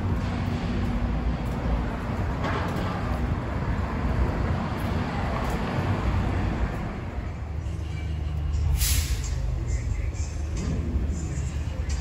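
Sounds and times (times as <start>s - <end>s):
passing cars rumble: 0.0s - 12.0s.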